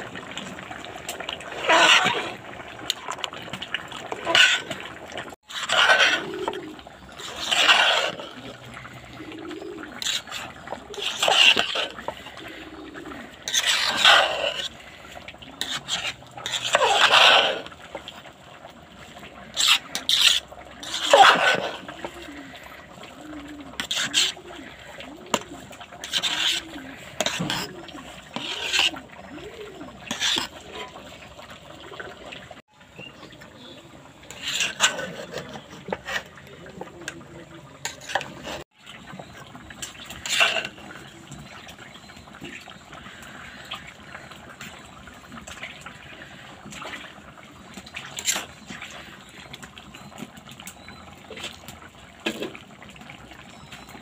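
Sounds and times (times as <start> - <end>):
spatula stirring rice in a pot: 0.0 - 31.4, 34.1 - 52.6
spatula scraping and knocking pot: 1.1 - 8.6, 9.9 - 12.3, 13.3 - 14.8, 15.6 - 17.8, 19.5 - 22.2, 23.7 - 24.4, 25.3 - 29.0, 30.0 - 31.0, 34.3 - 37.2, 37.8 - 38.6, 39.8 - 41.6.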